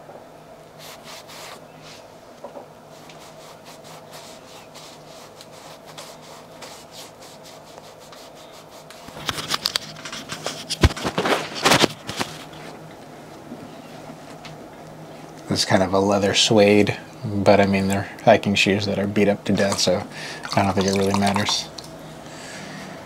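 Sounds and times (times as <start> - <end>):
pad rubbing on a shoe: 0.8 - 1.6, 2.9 - 9.3.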